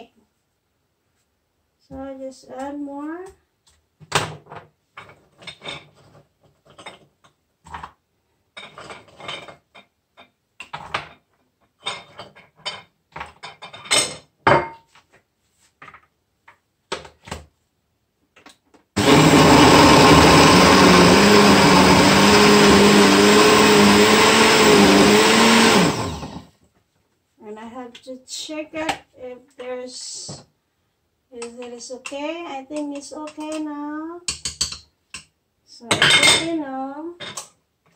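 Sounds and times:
blender running: 0:19.0 - 0:26.5.

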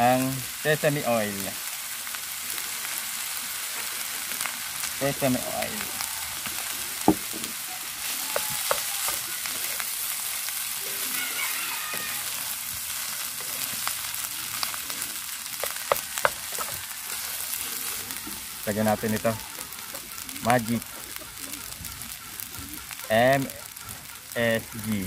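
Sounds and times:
rice sizzling in a frying pan: 0:00.0 - 0:25.0
spatula tapping against pan: 0:08.3 - 0:09.2, 0:15.6 - 0:16.8
wooden spatula scraping pan: 0:08.3 - 0:09.8, 0:15.6 - 0:17.4.

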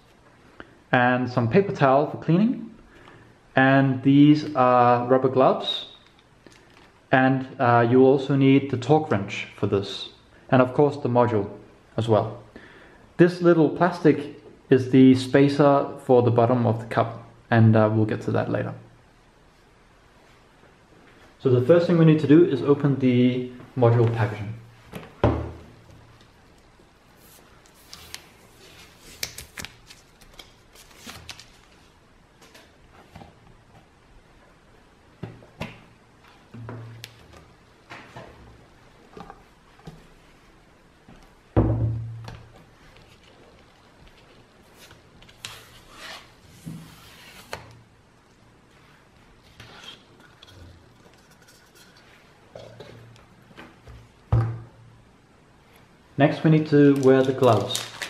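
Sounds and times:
packaging rustling and crinkling: 0:56.9 - 0:58.0.

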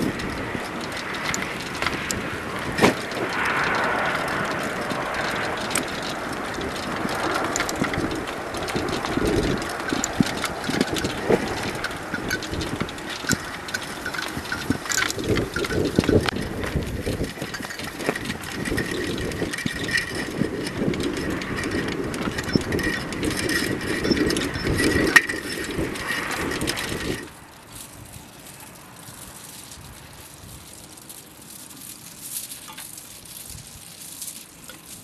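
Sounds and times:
buckets and cans clattering in wind: 0:00.0 - 0:35.0
wind hiss: 0:00.0 - 0:35.0.

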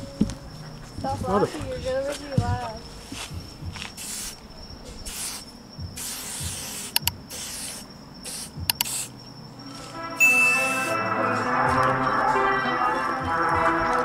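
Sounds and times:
spray paint can hissing: 0:03.2 - 0:04.4, 0:05.0 - 0:09.2
sharp clicks: 0:06.9 - 0:07.2, 0:08.6 - 0:09.0.

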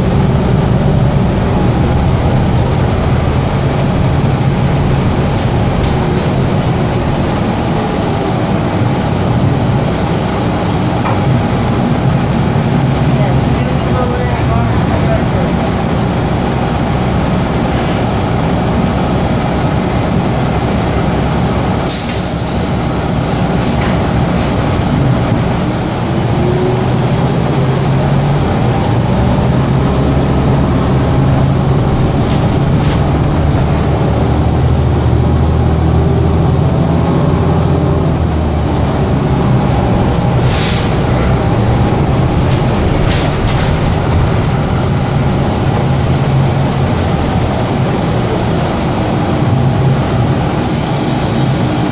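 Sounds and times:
bus drivetrain hum: 0:00.0 - 0:51.9
hiss of released air: 0:40.4 - 0:41.0, 0:50.6 - 0:51.8.

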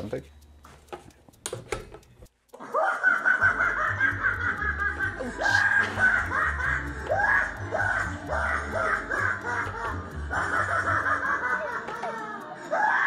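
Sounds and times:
animatronic music: 0:02.0 - 0:13.0
clown cackling laugh: 0:02.6 - 0:13.0
bass line: 0:03.8 - 0:10.8.

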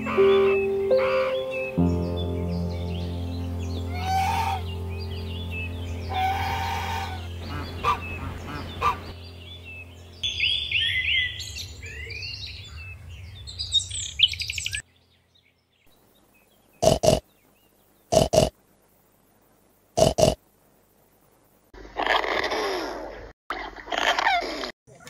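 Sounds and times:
goose honking: 0:00.0 - 0:01.4, 0:03.9 - 0:04.7, 0:06.1 - 0:09.2
small birds chirping: 0:00.0 - 0:25.0
steady low hum: 0:02.4 - 0:13.7.

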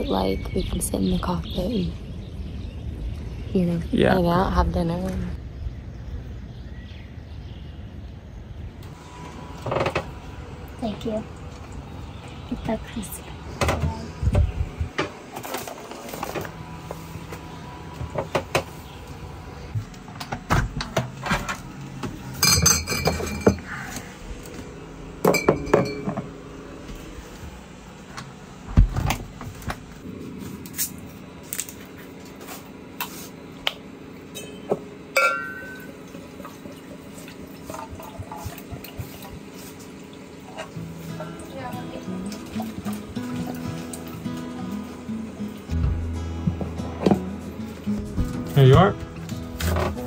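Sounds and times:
glass clinks: 0:22.4 - 0:23.6, 0:25.2 - 0:26.3, 0:34.4 - 0:35.9
clinks and knocks of dishes: 0:22.4 - 0:23.7, 0:25.2 - 0:26.4, 0:34.3 - 0:35.9.

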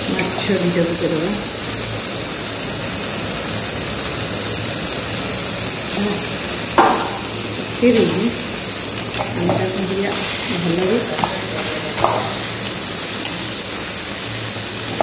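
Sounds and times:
fish sizzling in hot oil: 0:00.0 - 0:15.0
sharp knock: 0:06.8 - 0:07.3.

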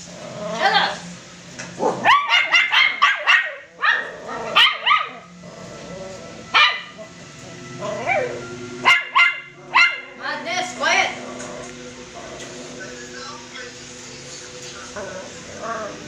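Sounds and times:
puppies yapping: 0:01.8 - 0:05.4, 0:06.5 - 0:07.2, 0:07.8 - 0:10.2.

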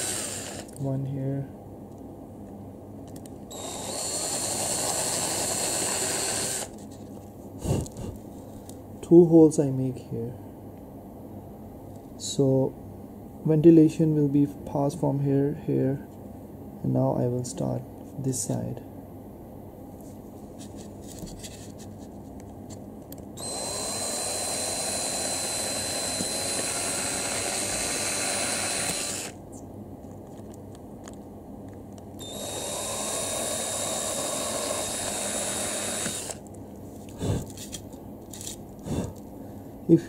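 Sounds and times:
small electric drill running: 0:00.0 - 0:00.8, 0:03.5 - 0:06.8, 0:23.4 - 0:29.4, 0:32.2 - 0:36.4.

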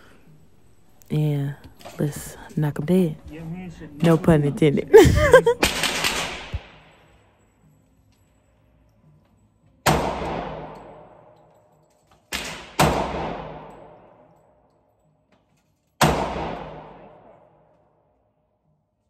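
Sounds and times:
handgun shots with echo: 0:05.6 - 0:07.0, 0:09.8 - 0:11.5, 0:12.2 - 0:14.3, 0:16.0 - 0:17.7.

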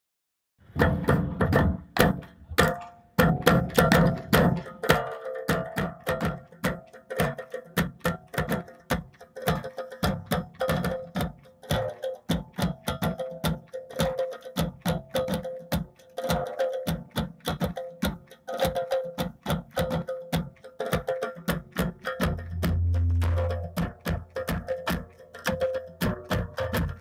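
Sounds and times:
drum kit playing: 0:22.3 - 0:24.4.

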